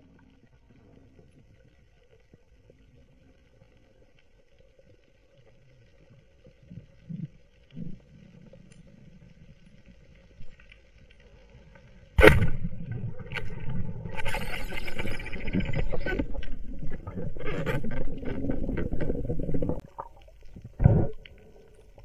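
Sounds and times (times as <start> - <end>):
faint steady hum: 0.0 - 22.0
rushing water with crackling: 0.0 - 22.0
speargun shot crack: 12.2 - 12.6.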